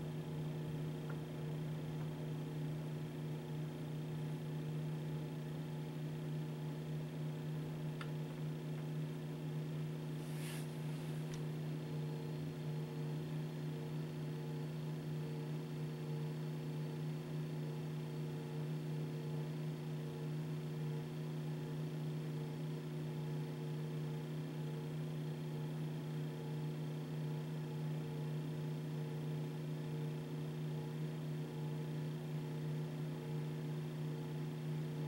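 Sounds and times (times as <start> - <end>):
electrical hum: 0.0 - 35.0
brief hiss: 10.2 - 11.2.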